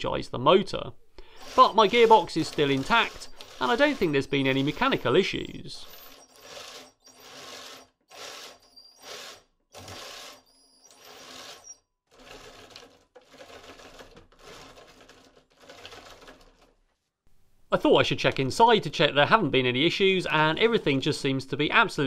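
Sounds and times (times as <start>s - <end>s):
electric motor whirring: 1.3s - 5.1s, 5.8s - 11.8s.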